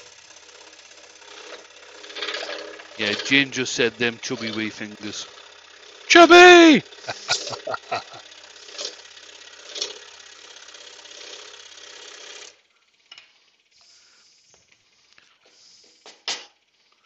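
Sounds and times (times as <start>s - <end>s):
scroll saw cutting wood: 0.0s - 6.2s, 6.8s - 12.6s.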